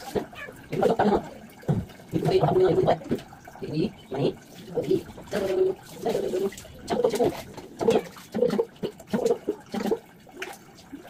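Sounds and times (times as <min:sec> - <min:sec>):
cat meowing: 0:00.2 - 0:00.6.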